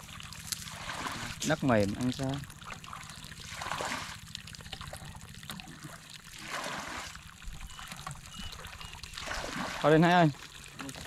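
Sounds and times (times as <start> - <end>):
low steady rumble: 0.0 - 11.0
water trickling and pouring: 0.0 - 11.0.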